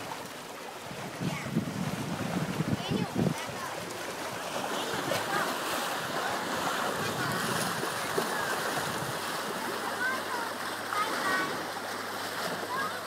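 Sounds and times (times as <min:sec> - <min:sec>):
sea water washing on rocks: 0:00.0 - 0:13.0
wind on microphone: 0:00.8 - 0:09.6.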